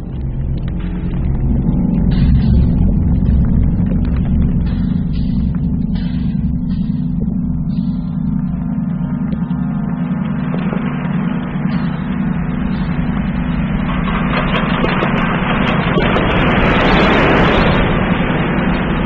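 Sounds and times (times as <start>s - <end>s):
electronic drone music: 0.0s - 19.0s.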